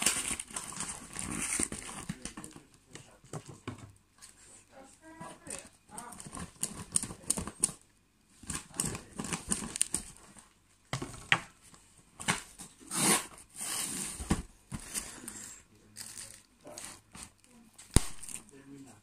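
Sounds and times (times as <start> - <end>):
packing tape ripping off cardboard: 0.0 - 2.6, 12.2 - 14.9.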